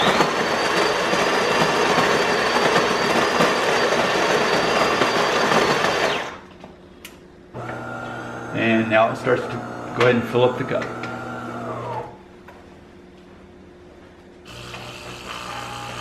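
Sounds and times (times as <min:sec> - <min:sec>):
coffee grinder grinding beans: 0:00.0 - 0:06.4, 0:07.6 - 0:12.0, 0:14.5 - 0:16.0
espresso machine humming: 0:00.0 - 0:06.4, 0:07.6 - 0:12.2, 0:14.5 - 0:16.0.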